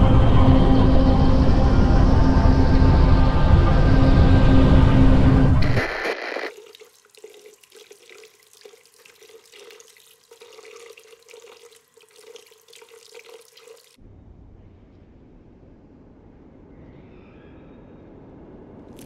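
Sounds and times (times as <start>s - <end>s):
loud burst of noise: 5.6s - 6.5s.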